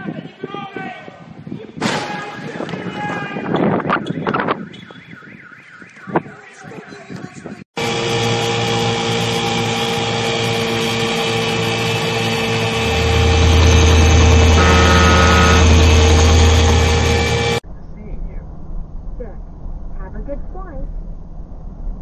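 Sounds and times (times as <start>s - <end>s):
motorboat engine running: 7.8s - 17.6s.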